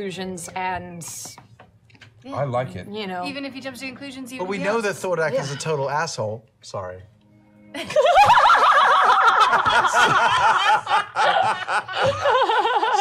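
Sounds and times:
group of people laughing: 0:07.8 - 0:13.0.

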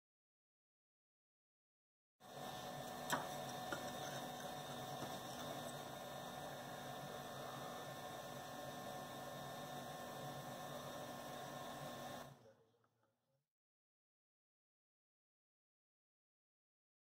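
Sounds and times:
electrical hum and hiss: 0:02.3 - 0:12.4.

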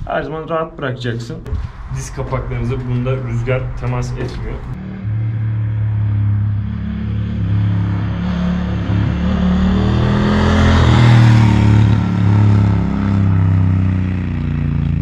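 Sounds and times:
rushing noise: 0:01.5 - 0:13.3
motorcycle engine running: 0:04.2 - 0:15.0.

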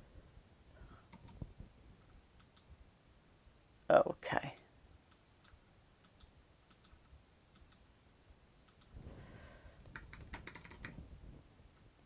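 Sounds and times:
typing on computer keyboard: 0:01.1 - 0:01.4, 0:05.4 - 0:07.0, 0:09.8 - 0:11.0.

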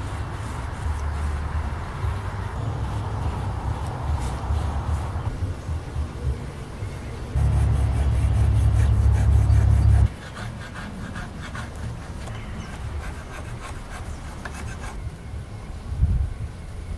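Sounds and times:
loud low rumble: 0:07.4 - 0:10.1.

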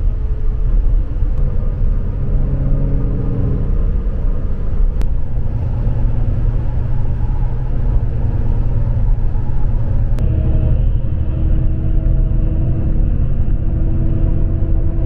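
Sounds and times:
road and engine rumble: 0:00.0 - 0:15.0.

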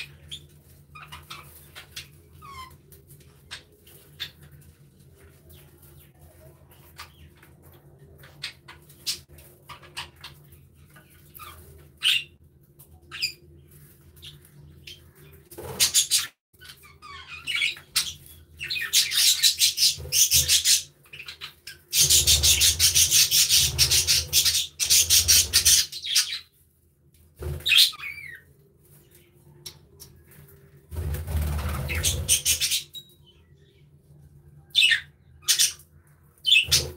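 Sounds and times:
budgerigars chirping and chattering: 0:00.0 - 0:02.8, 0:08.2 - 0:12.3, 0:14.2 - 0:26.5, 0:31.3 - 0:33.1, 0:34.8 - 0:36.9.

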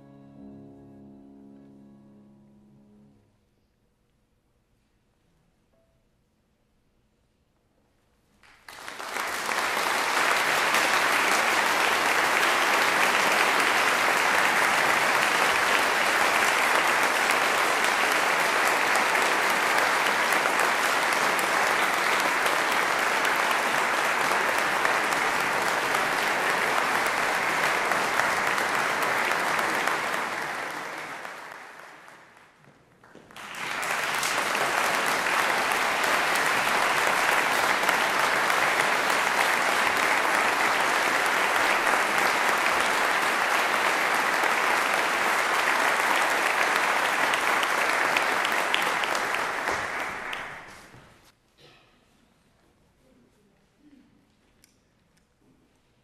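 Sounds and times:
audience applauding: 0:08.4 - 0:51.2.

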